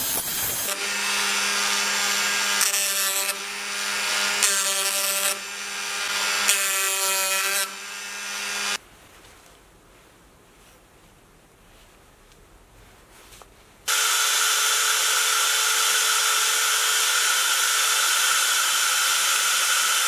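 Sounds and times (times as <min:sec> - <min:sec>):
rotary tool whining: 0:00.0 - 0:08.8, 0:13.9 - 0:20.0.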